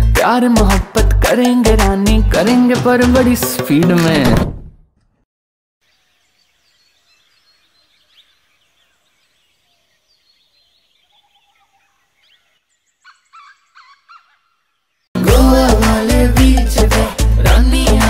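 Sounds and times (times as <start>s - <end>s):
small birds chirping: 5.8s - 15.1s
short repeated bird calls: 6.7s - 15.0s.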